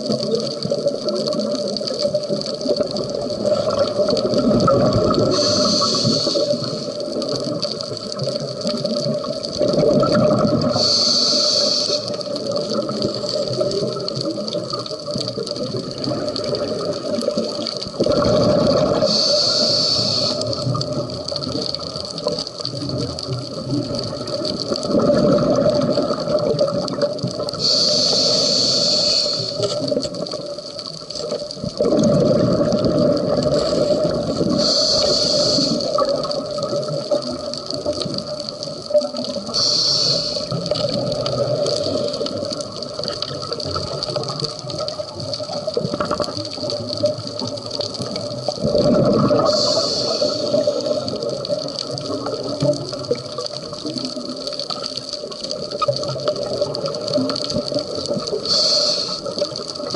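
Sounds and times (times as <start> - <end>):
bubbling exhalations: 0.0 - 11.2, 11.9 - 30.6, 31.5 - 59.9
regulator hissing inhalations: 5.3 - 7.0, 10.7 - 12.3, 19.0 - 20.6, 27.6 - 29.8, 33.6 - 36.0, 39.5 - 40.6, 49.4 - 51.1, 58.4 - 59.4.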